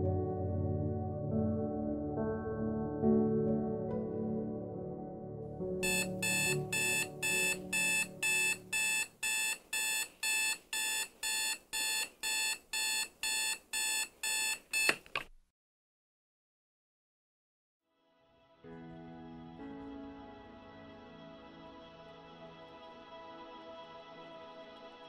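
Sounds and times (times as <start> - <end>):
soft ambient music: 0.0 - 9.2, 18.0 - 25.0
digital alarm clock beeping: 5.8 - 15.0.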